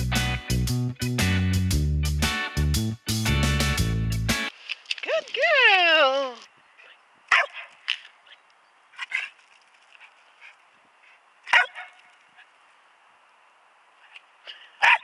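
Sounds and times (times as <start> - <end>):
dog barking with echo: 7.3 - 7.7, 11.5 - 12.0, 14.8 - 15.0.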